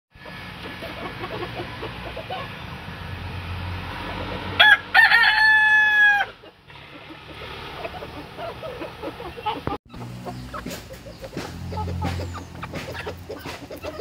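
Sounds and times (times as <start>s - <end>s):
rooster crowing: 4.5s - 6.4s.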